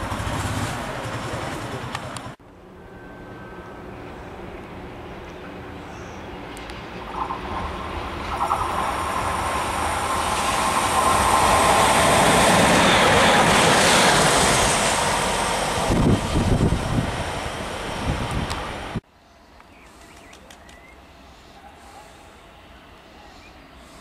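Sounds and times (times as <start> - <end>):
train rumble and rail noise: 0.0 - 24.0
steady whine: 2.3 - 20.4.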